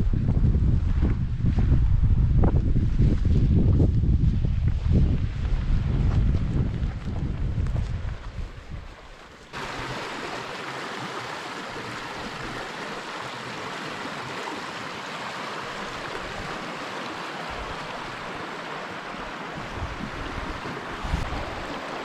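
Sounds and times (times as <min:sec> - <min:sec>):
stream water rushing: 0:08.8 - 0:22.0.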